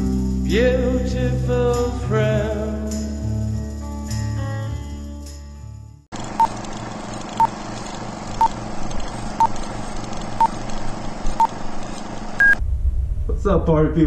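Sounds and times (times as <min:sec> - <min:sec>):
short beeps: 0:12.4 - 0:12.6.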